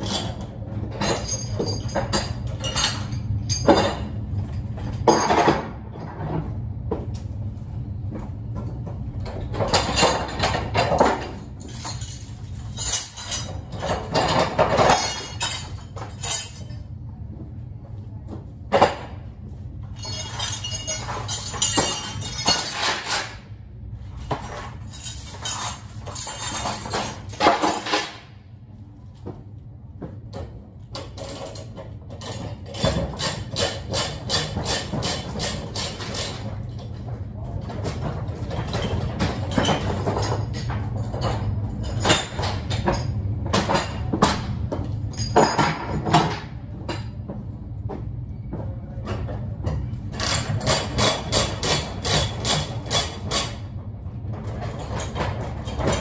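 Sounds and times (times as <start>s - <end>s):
load chains clinking and rattling: 0.0s - 6.4s, 9.2s - 16.9s, 19.9s - 28.4s, 30.9s - 47.1s, 50.1s - 56.0s
low steady hum: 0.0s - 56.0s.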